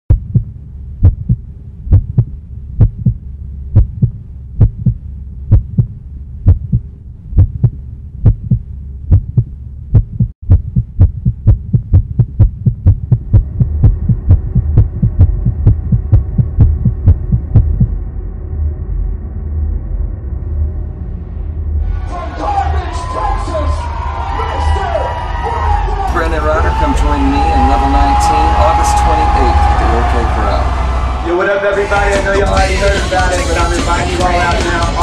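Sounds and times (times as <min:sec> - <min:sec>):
heartbeat thuds: 0:00.1 - 0:18.0
low droning hum: 0:00.1 - 0:23.7, 0:25.6 - 0:34.8.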